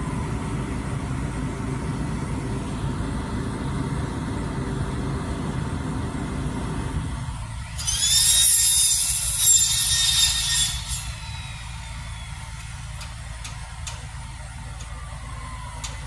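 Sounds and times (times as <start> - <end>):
truck engine running: 0.0 - 16.0
high-pitched mechanical squeal: 7.6 - 13.2.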